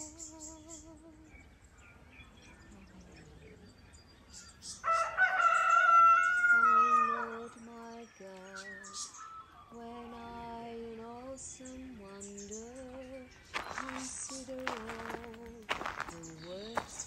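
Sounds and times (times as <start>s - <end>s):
rooster crowing: 4.8s - 7.5s.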